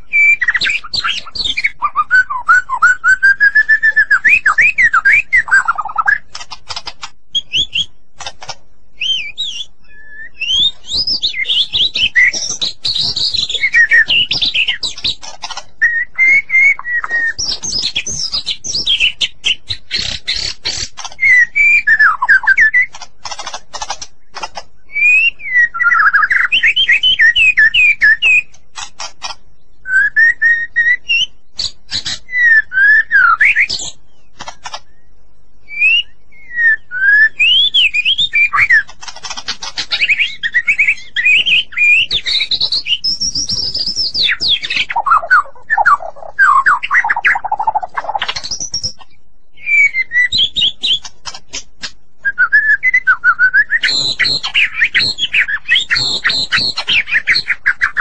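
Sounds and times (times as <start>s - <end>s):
bird singing whistled notes: 0.0s - 6.5s, 7.3s - 8.0s, 8.9s - 23.0s, 24.1s - 28.6s, 29.2s - 34.4s, 35.0s - 51.1s, 52.2s - 58.0s
bird clicking notes: 6.2s - 7.2s, 8.2s - 8.6s, 12.2s - 15.8s, 19.9s - 21.4s, 22.8s - 24.7s, 28.4s - 29.4s, 34.4s - 34.9s, 38.5s - 40.2s.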